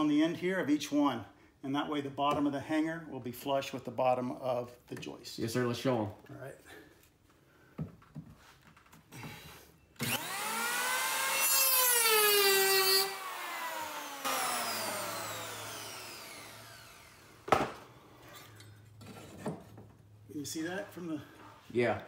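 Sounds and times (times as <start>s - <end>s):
electric hand planer whining: 10.0s - 17.6s
planer cutting wood: 10.0s - 17.8s.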